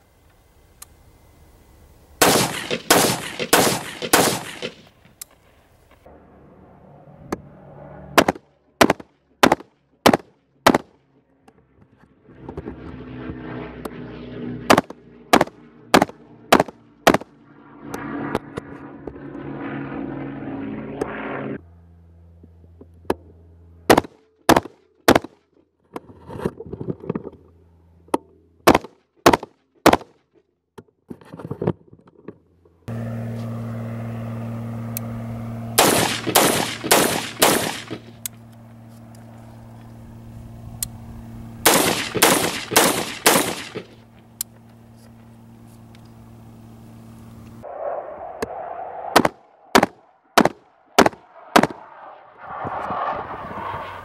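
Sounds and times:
rifle shots: 0:02.2 - 0:05.0, 0:08.2 - 0:10.9, 0:14.7 - 0:17.3, 0:23.9 - 0:25.3, 0:28.7 - 0:30.1, 0:35.8 - 0:38.2, 0:41.6 - 0:44.0, 0:49.2 - 0:51.8.

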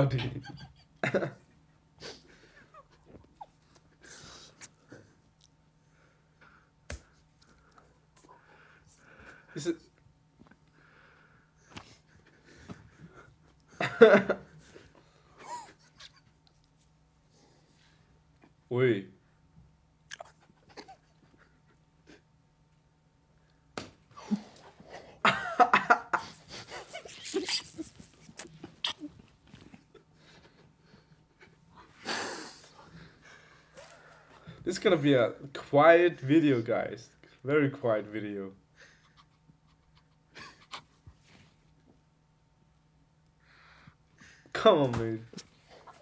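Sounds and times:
slap on neck: 0:23.8 - 0:24.0
stifled breathing: 0:26.1 - 0:34.7.

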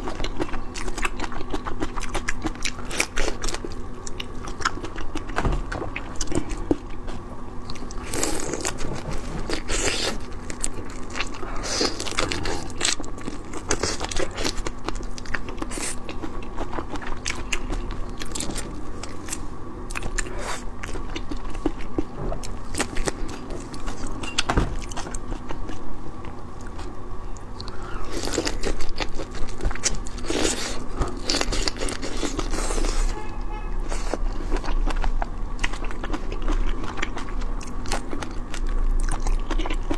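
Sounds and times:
wet chewing: 0:00.0 - 0:39.9.

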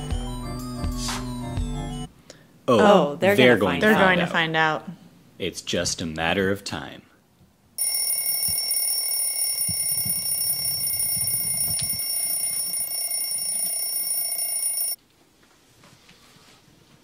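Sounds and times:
high-pitched electronic alarm: 0:07.8 - 0:15.0.

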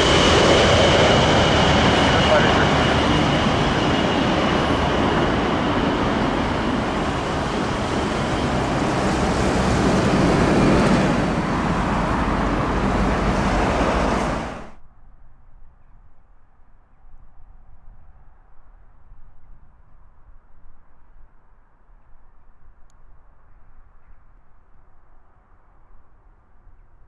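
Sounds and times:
high jet whine: 0:00.0 - 0:14.8
jet engine roar: 0:00.0 - 0:14.8
faint outdoor background: 0:00.0 - 0:27.0.

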